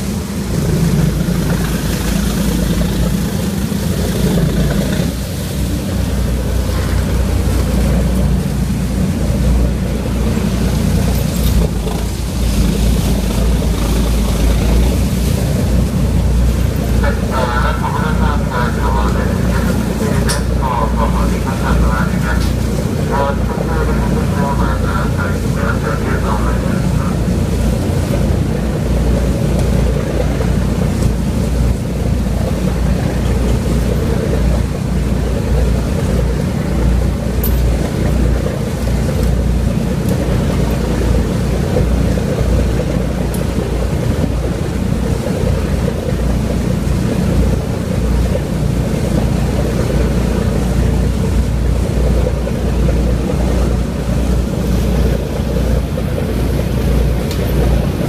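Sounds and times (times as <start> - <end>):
wind buffeting microphone: 0.0 - 17.2
diesel engines idling: 0.0 - 58.0.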